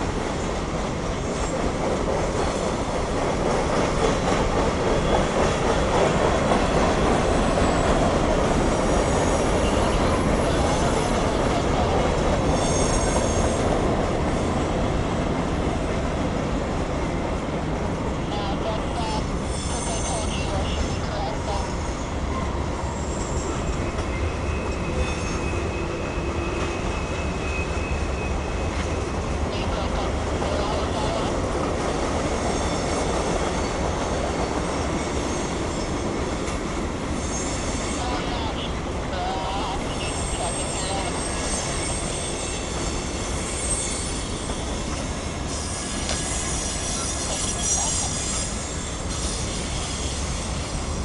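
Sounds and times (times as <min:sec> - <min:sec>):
train wheels rumbling and rattling: 0:00.0 - 0:51.0
high-pitched wheel squeal: 0:12.6 - 0:13.6, 0:22.9 - 0:28.6, 0:37.2 - 0:38.1, 0:40.0 - 0:50.4.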